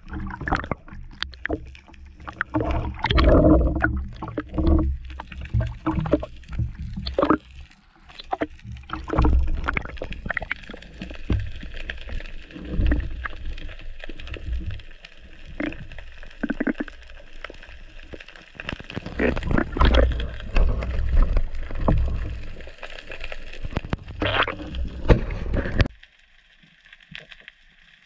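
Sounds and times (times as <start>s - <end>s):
muffled underwater noise: 0.0s - 25.9s
seawater sloshing and gurgling: 0.0s - 25.9s
knocks and splashes: 2.3s - 7.4s, 8.4s - 11.7s.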